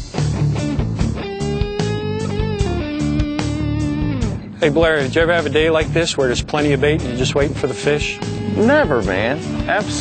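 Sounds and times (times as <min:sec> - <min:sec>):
electric guitar: 0:00.0 - 0:04.6
steady drum beat: 0:00.0 - 0:10.0.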